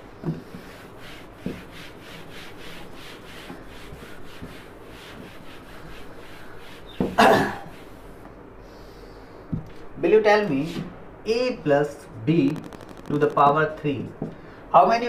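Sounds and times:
cloth wiping a whiteboard: 0.2 - 8.2.

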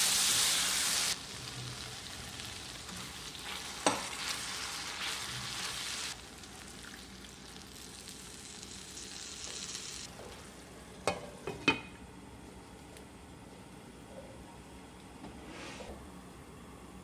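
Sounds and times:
food sizzling in a wok: 0.0 - 10.5.

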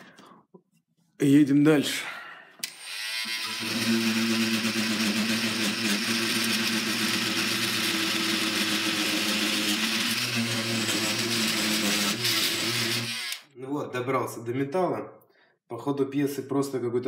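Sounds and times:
oscillating multi-tool buzzing: 2.7 - 13.5.

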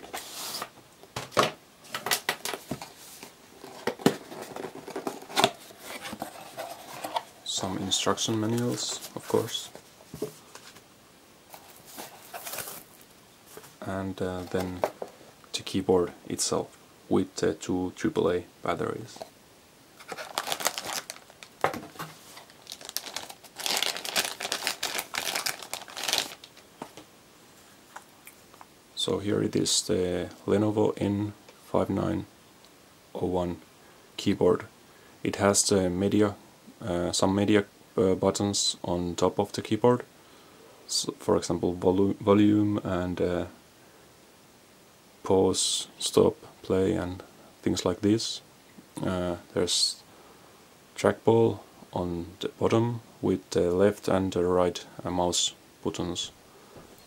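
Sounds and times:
cardboard sleeve sliding off box: 0.1 - 0.7
cardboard rustling: 1.9 - 10.8, 11.5 - 13.8, 20.0 - 27.0
plastic bag crinkling: 20.0 - 27.0.

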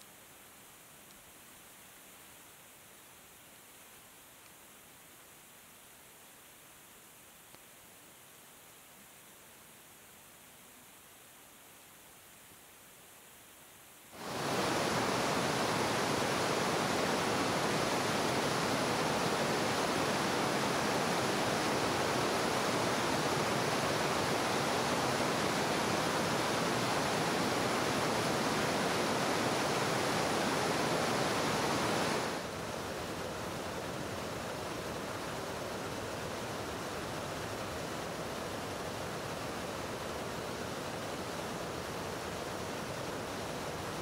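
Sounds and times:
waterfall rushing over rock: 14.2 - 44.0.

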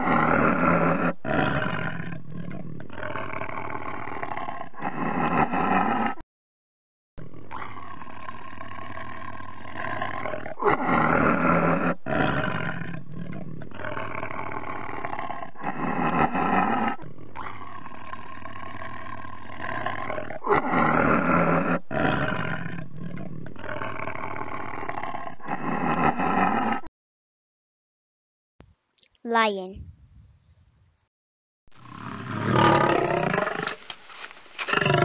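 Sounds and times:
tiger growling: 0.0 - 6.2, 7.2 - 26.9, 31.8 - 33.9, 34.6 - 35.0
tiger roaring: 0.0 - 6.2, 7.2 - 26.9, 31.8 - 33.8.

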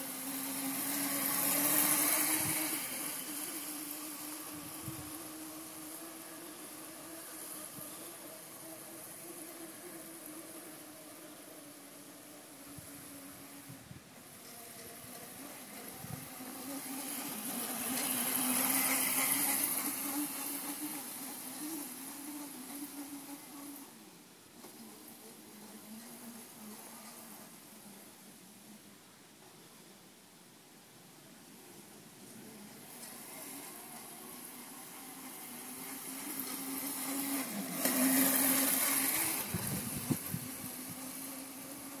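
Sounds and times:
electric motor whining: 0.0 - 13.7, 33.0 - 42.0.

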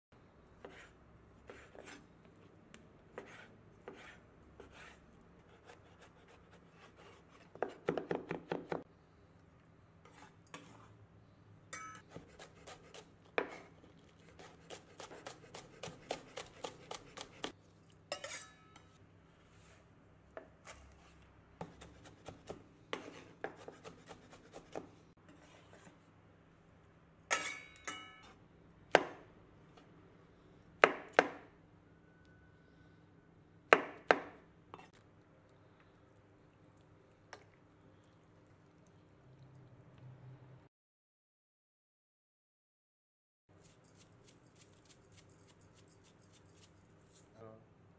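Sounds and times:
knife chopping on wooden board: 7.5 - 8.8, 14.3 - 17.5.

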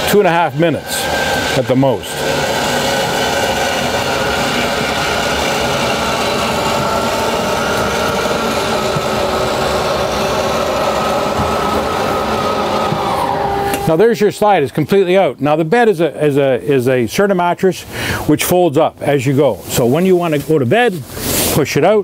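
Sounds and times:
electric motor whining drone: 0.0 - 14.4.

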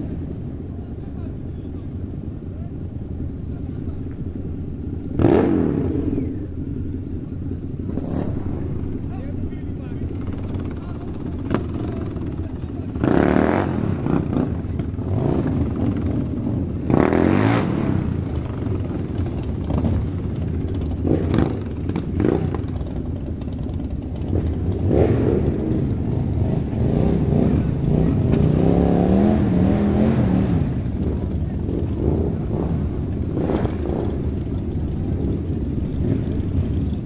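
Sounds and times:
motorcycle engines rumbling: 0.0 - 37.0
motorcycle throttle revs: 4.9 - 9.1, 10.0 - 37.0.

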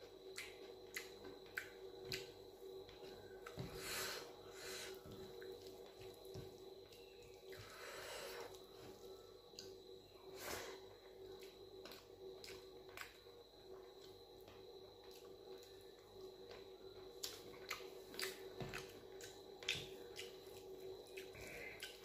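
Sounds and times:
faint steady hum: 0.0 - 22.0
chewing food: 0.2 - 3.7, 11.2 - 22.0.

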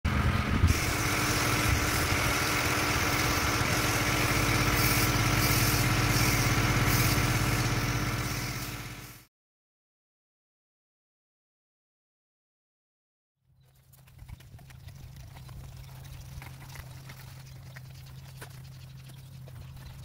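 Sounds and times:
pressure washer engine running: 0.1 - 9.3
high hiss of spraying water: 0.7 - 9.3.

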